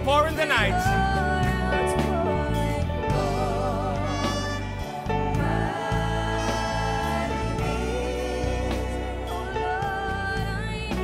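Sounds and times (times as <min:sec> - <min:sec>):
bass and drums backing: 0:00.0 - 0:11.0
woman singing with vibrato: 0:00.8 - 0:11.0.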